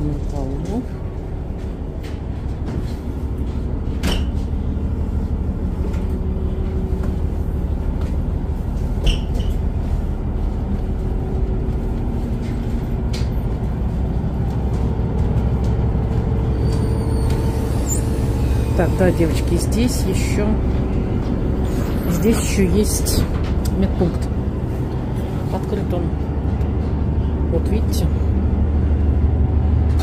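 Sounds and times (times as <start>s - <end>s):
ship machinery drone: 0.0s - 30.0s.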